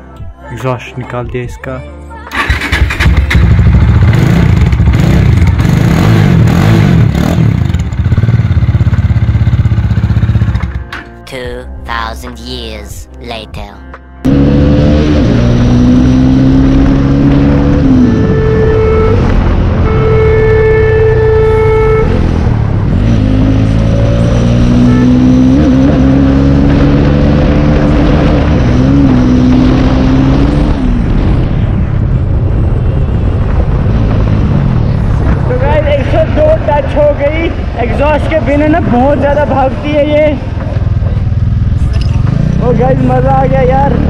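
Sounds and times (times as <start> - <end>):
motorcycle engine revving and idling: 2.3 - 11.0, 14.2 - 44.0.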